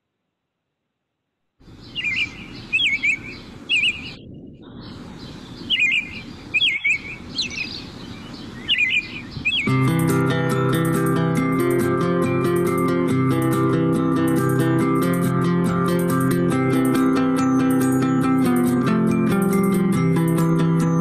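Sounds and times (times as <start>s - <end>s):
small birds chirping: 1.6s - 21.0s
acoustic guitar music: 9.6s - 21.0s.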